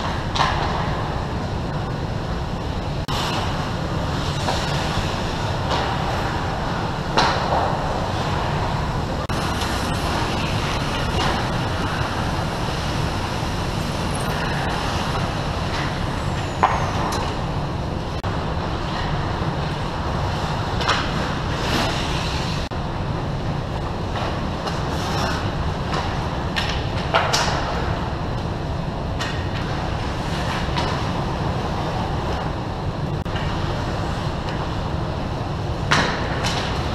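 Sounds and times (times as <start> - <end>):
sticks and puck clacking: 0.0 - 1.1, 5.6 - 8.6, 14.3 - 17.4, 20.7 - 22.8, 24.2 - 28.0, 29.2 - 31.2, 35.9 - 36.9
low rink rumble: 0.0 - 36.9
skates hissing on ice: 21.6 - 22.7.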